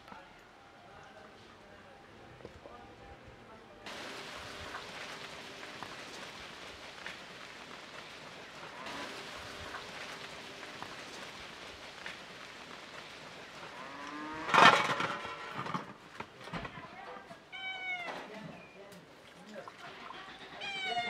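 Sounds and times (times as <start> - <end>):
cattle hooves on stony track: 3.9 - 21.0.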